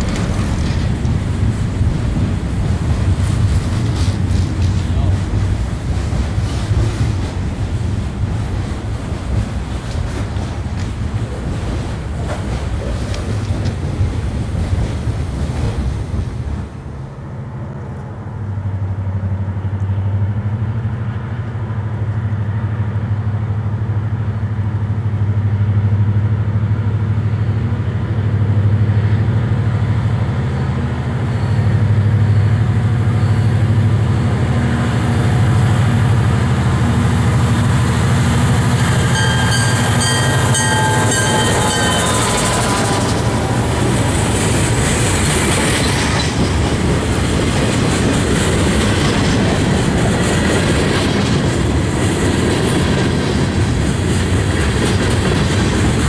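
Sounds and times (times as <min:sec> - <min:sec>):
train wheel clicks: 0:09.1 - 0:14.1
locomotive diesel engine drone: 0:16.7 - 0:49.4
freight cars rumbling past: 0:24.6 - 0:56.0.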